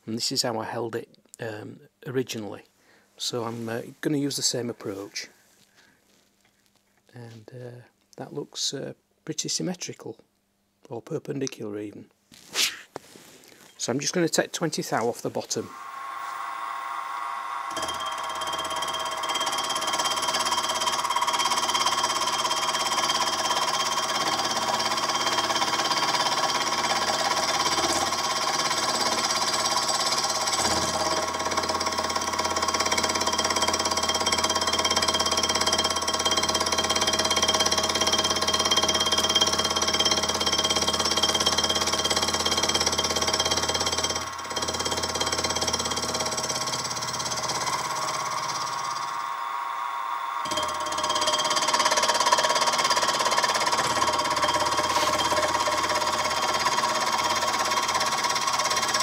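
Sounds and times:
milling machine motor whine: 15.7s - 32.3s, 46.9s - 59.0s.

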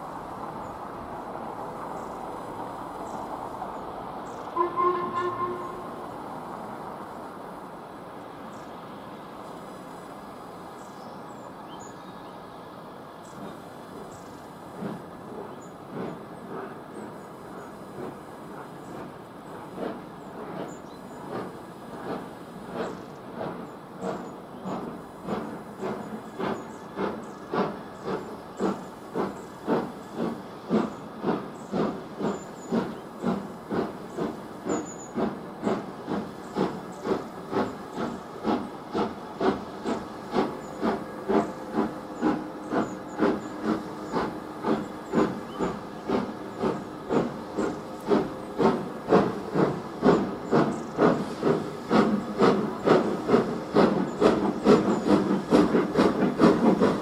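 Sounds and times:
steam locomotive chuffing: 0.0s - 57.0s.

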